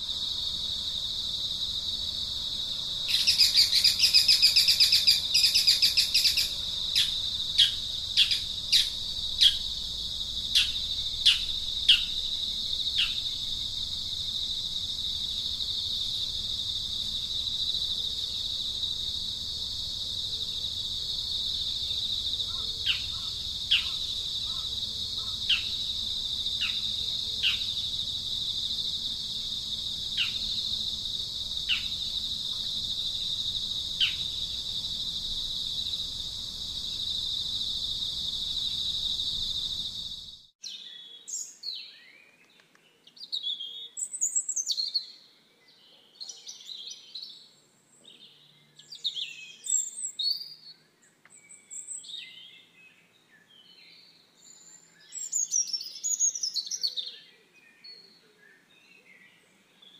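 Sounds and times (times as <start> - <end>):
crickets droning: 0.0 - 42.1, 46.6 - 59.9
loud rapid bird chirping: 3.1 - 9.7, 10.5 - 12.3, 22.5 - 25.8, 26.6 - 27.8, 30.2 - 30.8, 31.6 - 32.0, 34.0 - 34.6.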